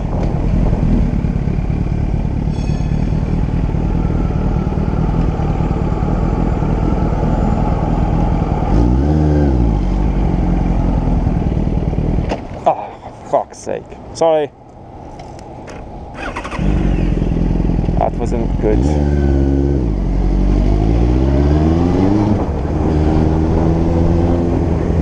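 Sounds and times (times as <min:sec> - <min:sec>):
motorcycle engine running: 0:00.0 - 0:08.7, 0:09.4 - 0:12.6.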